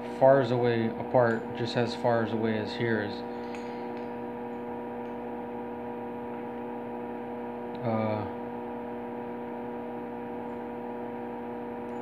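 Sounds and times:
electrical hum: 0:00.0 - 0:12.0
man murmuring: 0:07.8 - 0:08.4.

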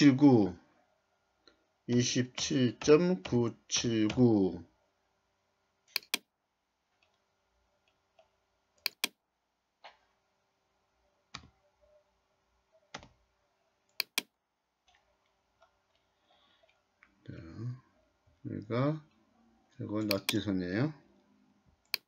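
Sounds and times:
mouse buttons clicking: 0:05.9 - 0:06.3, 0:08.8 - 0:09.2, 0:13.9 - 0:14.3, 0:20.0 - 0:20.5.

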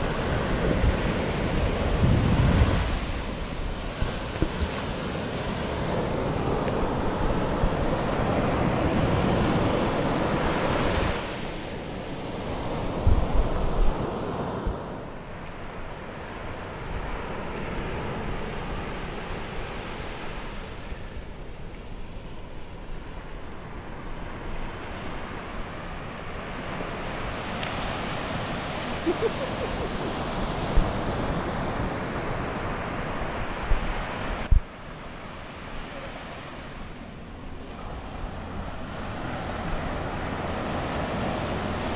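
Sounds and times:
wind on microphone: 0:00.0 - 0:15.2, 0:22.4 - 0:36.8
ocean surf on sand: 0:00.0 - 0:41.9.

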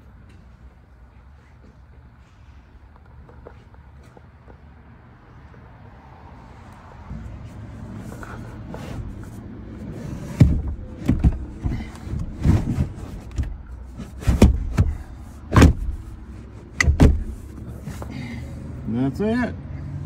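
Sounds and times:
dull knocks and thumps: 0:10.2 - 0:18.1.

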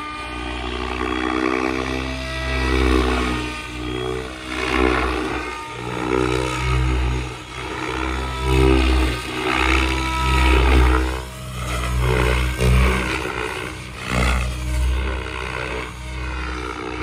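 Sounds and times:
rc helicopter buzzing: 0:00.0 - 0:17.0.

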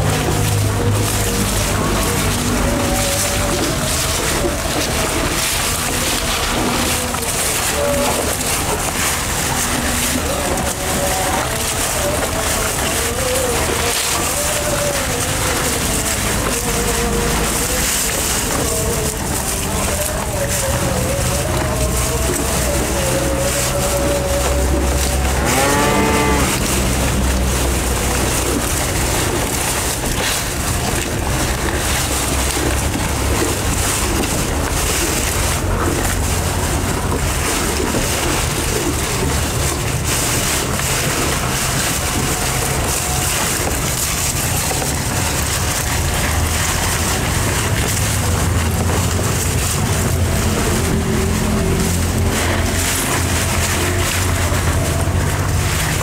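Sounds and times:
bulls chewing and tearing grass: 0:00.0 - 0:56.0
rushing noise with low rumble: 0:00.0 - 0:56.0.

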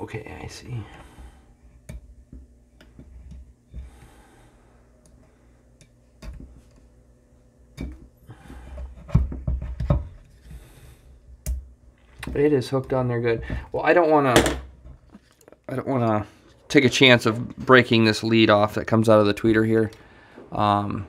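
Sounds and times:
soft breaths: 0:00.7 - 0:01.8, 0:03.7 - 0:05.8, 0:08.2 - 0:09.1, 0:10.3 - 0:11.4, 0:19.9 - 0:21.0.

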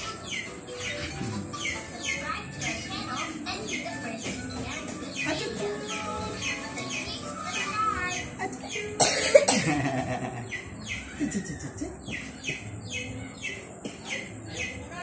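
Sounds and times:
person coughing loudly: 0:09.0 - 0:09.9.

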